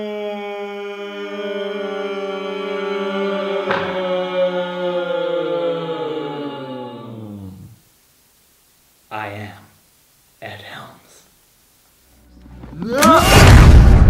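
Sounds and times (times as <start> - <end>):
person crying out long note: 0.0 - 7.8, 12.7 - 13.7
second voice layered: 12.6 - 13.6.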